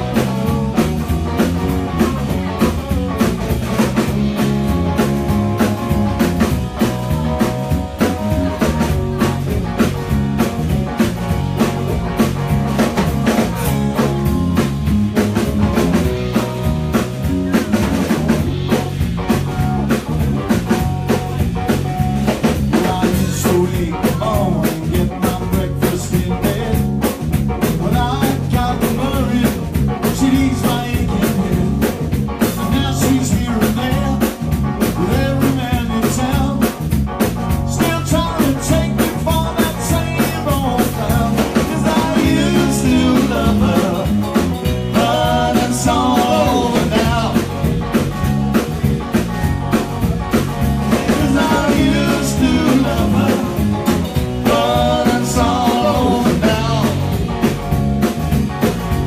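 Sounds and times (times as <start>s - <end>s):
live rock band playing: 0.0s - 59.0s
man singing: 22.6s - 36.8s, 37.7s - 47.7s, 50.9s - 57.3s.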